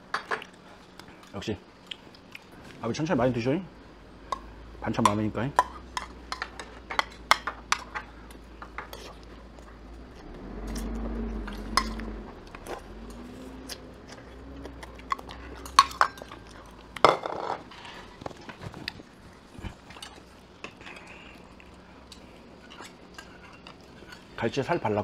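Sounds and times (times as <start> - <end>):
cutlery clinking against plates: 4.3 - 9.2, 15.1 - 18.1.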